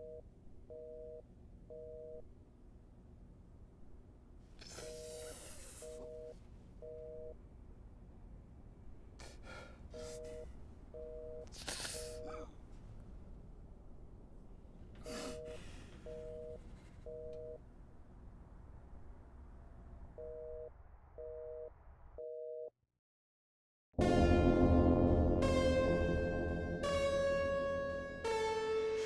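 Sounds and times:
telephone busy signal: 0.0 - 2.2.

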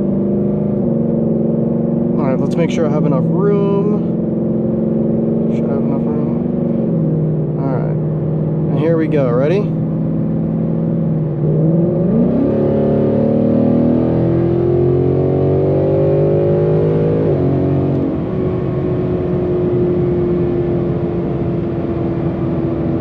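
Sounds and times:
car engine accelerating: 0.0 - 23.0.

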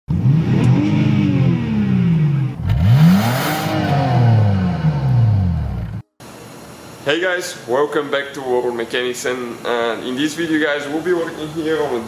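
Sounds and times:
car engine revving: 0.1 - 6.0.

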